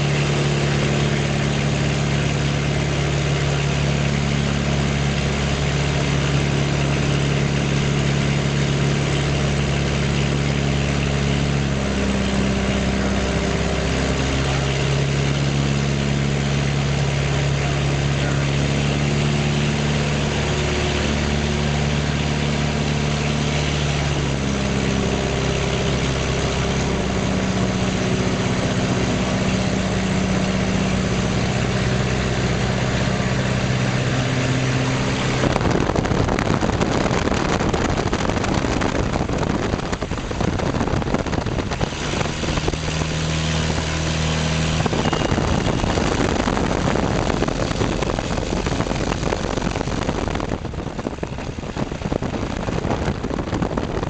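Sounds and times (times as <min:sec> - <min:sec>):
light aircraft engine and propeller: 0:00.0 - 0:54.0
rush of air: 0:33.9 - 0:54.0.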